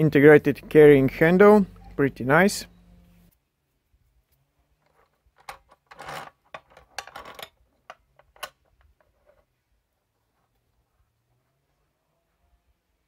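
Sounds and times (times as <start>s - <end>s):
metal pipe clinking and scraping: 4.8s - 9.5s.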